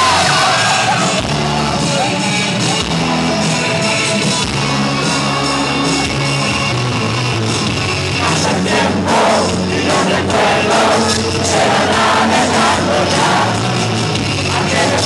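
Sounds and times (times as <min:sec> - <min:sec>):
loud rock music: 0:00.0 - 0:15.0
man singing into microphone: 0:08.2 - 0:13.6, 0:14.5 - 0:15.0.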